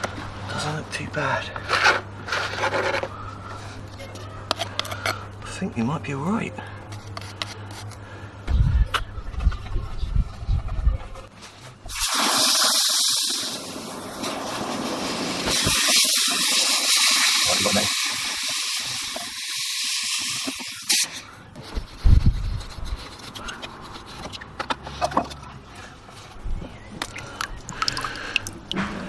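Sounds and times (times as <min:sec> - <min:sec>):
steam hissing: 0:11.9 - 0:21.2
faint bubbling water: 0:27.0 - 0:28.8.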